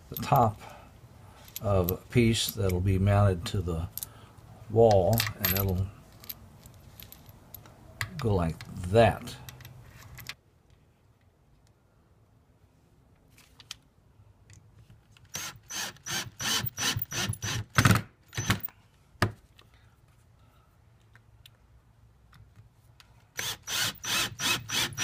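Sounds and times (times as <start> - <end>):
cordless drill pulsing: 15.4 - 17.6, 23.4 - 25.0.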